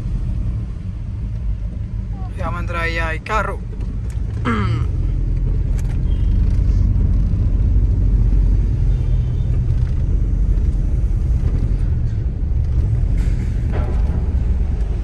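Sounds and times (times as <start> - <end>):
car driving rumble: 0.0 - 15.0.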